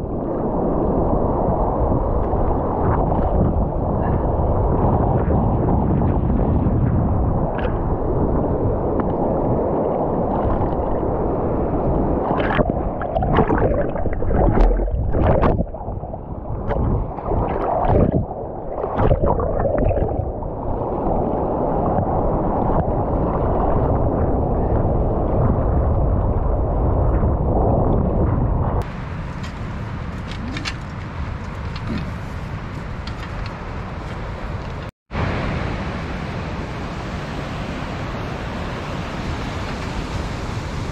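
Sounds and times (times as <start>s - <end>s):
muffled sloshing sea water: 0.0s - 40.9s
wind: 0.0s - 40.9s
distant surf: 28.8s - 40.9s.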